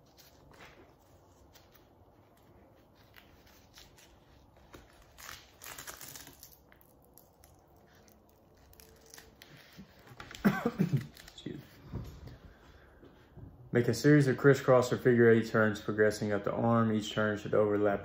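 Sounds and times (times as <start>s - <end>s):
bandage rustling and crinkling: 0.0s - 12.4s.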